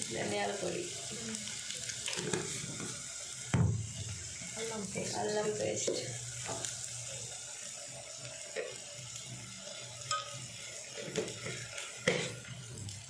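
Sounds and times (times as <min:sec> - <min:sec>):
food sizzling in a pot: 0:00.0 - 0:13.0
spoon clinking against pot: 0:10.1 - 0:10.4.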